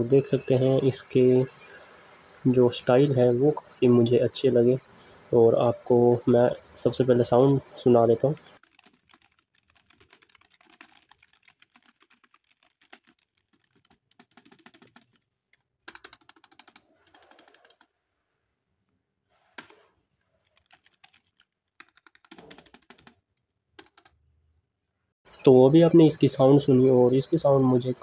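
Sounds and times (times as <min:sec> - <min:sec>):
keyboard typing: 0:07.8 - 0:17.9, 0:20.4 - 0:23.2, 0:23.8 - 0:24.2.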